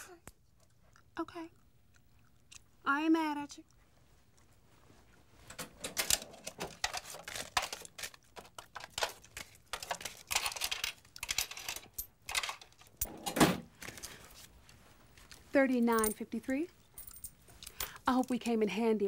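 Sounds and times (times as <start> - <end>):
money rustling: 5.5 - 13.0, 13.7 - 16.2
cash register keys clicking: 8.8 - 13.3.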